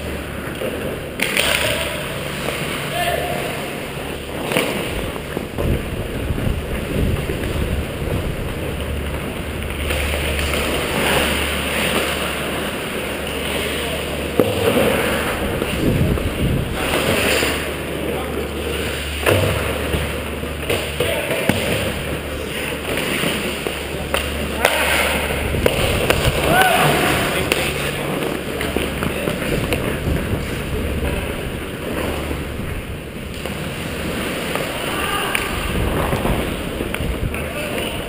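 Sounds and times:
hockey sticks and puck knocking: 0.0 - 2.9, 4.1 - 7.6, 8.6 - 32.4, 34.4 - 38.0
low hum: 0.0 - 37.7
skates scraping on ice: 0.0 - 38.0
indistinct shouted voices: 2.9 - 3.8, 26.4 - 27.4.

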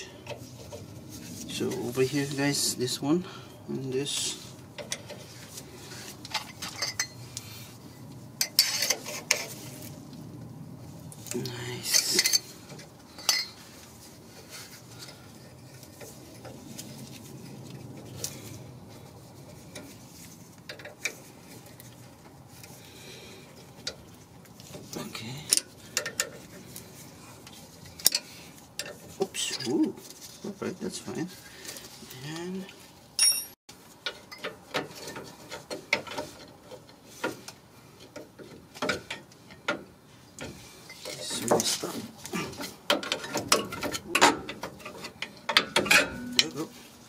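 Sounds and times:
wrench clinking and scraping on metal: 4.2 - 7.2, 8.4 - 9.6, 11.7 - 13.8, 23.5 - 29.8, 33.2 - 39.8, 40.4 - 47.0.

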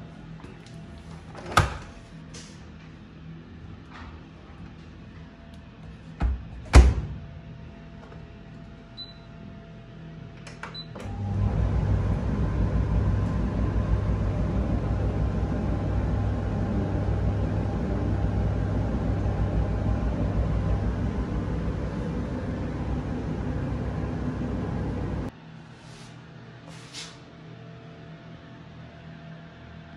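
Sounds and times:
dryer door shutting: 1.4 - 1.9, 6.2 - 7.2
dryer motor humming: 10.9 - 25.3.

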